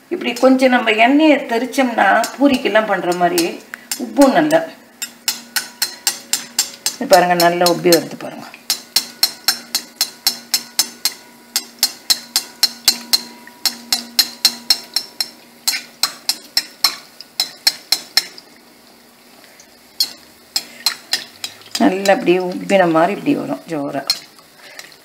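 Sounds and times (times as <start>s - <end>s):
low frying sizzle: 0.0s - 25.0s
metal skimmer clinking on wok: 1.9s - 18.3s, 24.0s - 24.3s.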